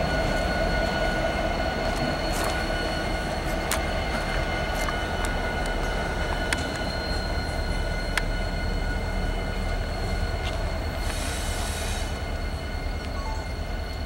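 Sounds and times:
locomotive engines rumbling: 0.0s - 14.0s
wheel flanges squealing: 0.0s - 14.0s
wheels clicking on rail: 1.8s - 8.4s.

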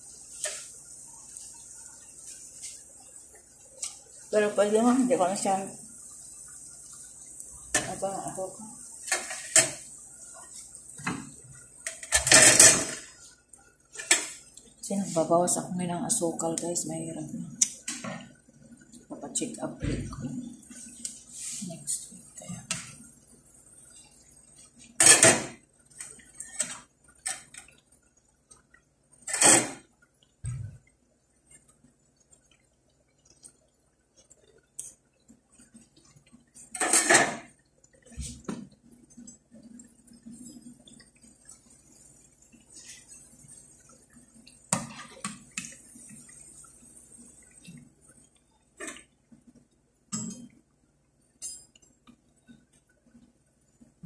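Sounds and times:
oil sizzling: 0.0s - 30.8s, 31.4s - 54.0s
metal skimmer scraping pan: 9.0s - 9.9s, 36.7s - 37.5s.

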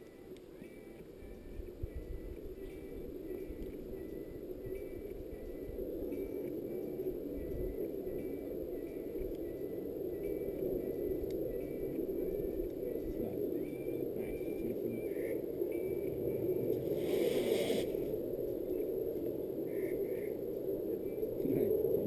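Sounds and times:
rushing outdoor background noise: 0.0s - 22.0s
brief hiss: 16.9s - 18.0s.

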